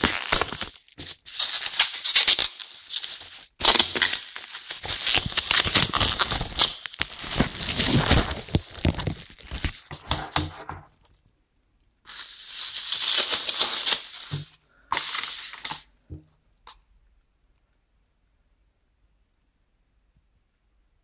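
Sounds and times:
packaging wrap crinkling and tearing: 0.0 - 10.4, 12.1 - 15.9.

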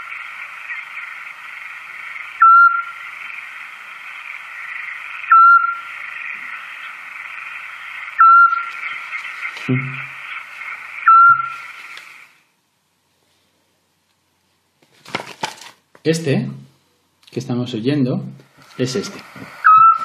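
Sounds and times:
steady hiss: 0.0 - 14.6, 15.9 - 20.0
owl whistled notes: 2.3 - 3.0, 4.6 - 6.9, 8.1 - 11.8, 19.6 - 20.0.

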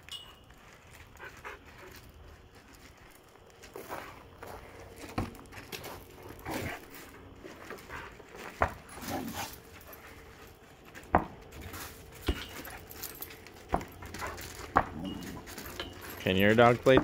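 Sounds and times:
dogs hitting ball thuds: 5.0 - 6.8, 7.7 - 9.6, 10.9 - 16.2, 16.8 - 17.0
dog sounds: 12.3 - 16.2.

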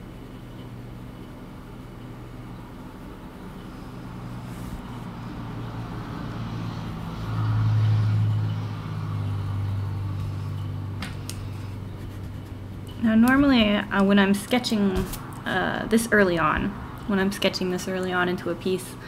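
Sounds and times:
low motor hum: 0.0 - 19.0.

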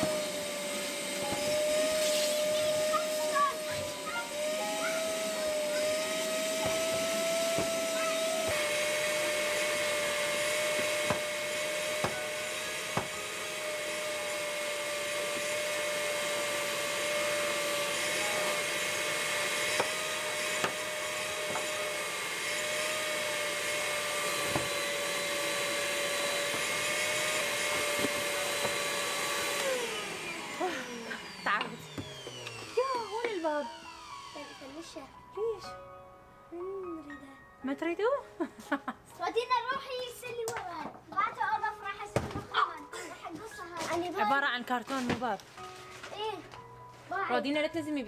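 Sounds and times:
electric motor whining: 0.0 - 35.8.

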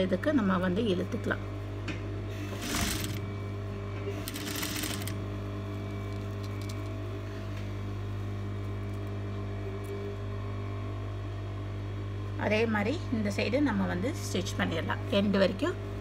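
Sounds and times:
sewing machine motor hum: 2.3 - 7.4.

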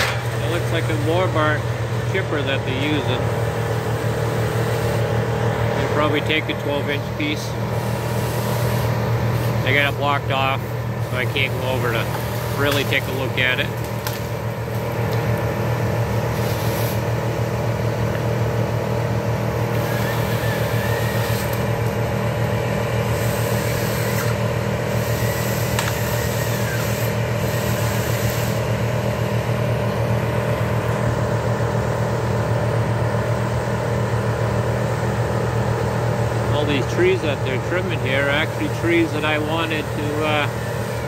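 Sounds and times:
heavy machine engine running: 0.0 - 41.0.

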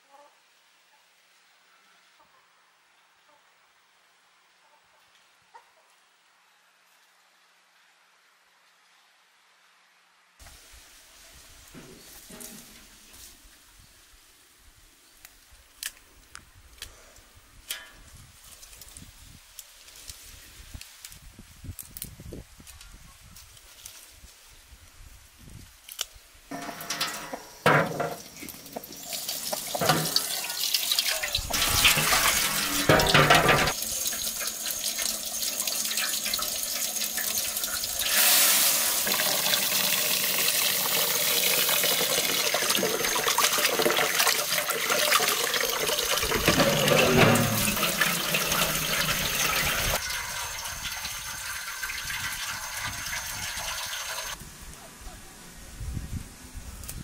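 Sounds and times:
splashes and knocks: 26.5 - 30.6, 31.5 - 33.8, 46.2 - 50.0
tap water running onto rice: 26.5 - 54.4.

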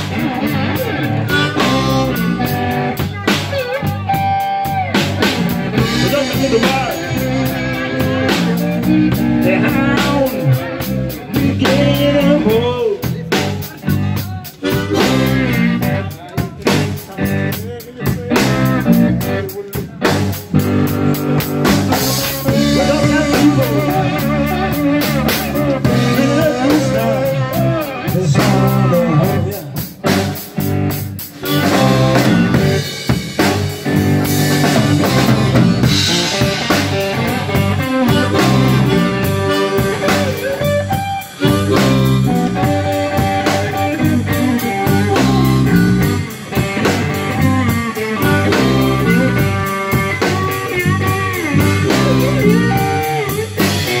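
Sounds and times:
blues band playing: 0.0 - 54.0
harmonica: 37.1 - 54.0.

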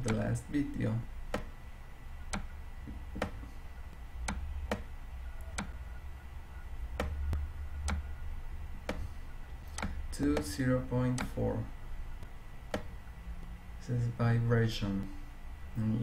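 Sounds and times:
computer mouse clicking: 0.0 - 0.2, 2.3 - 5.8, 7.0 - 8.2, 9.7 - 11.4
steady low hum: 0.0 - 16.0.

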